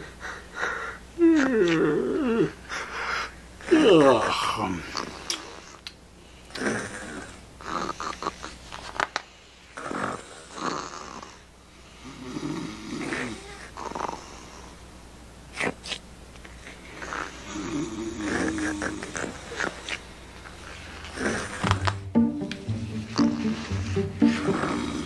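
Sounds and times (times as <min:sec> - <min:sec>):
breathy snoring: 0:06.6 - 0:08.4, 0:09.8 - 0:11.4, 0:17.0 - 0:19.8, 0:20.8 - 0:21.8, 0:24.2 - 0:25.0.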